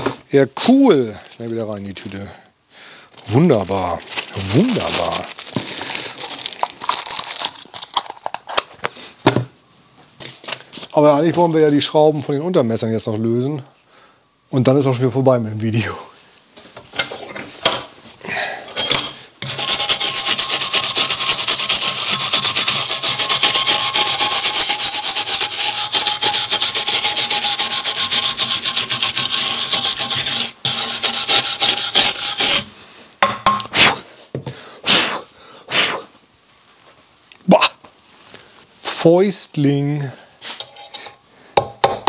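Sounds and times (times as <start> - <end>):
stiff brush scrubbing metal: 19.4 - 32.7.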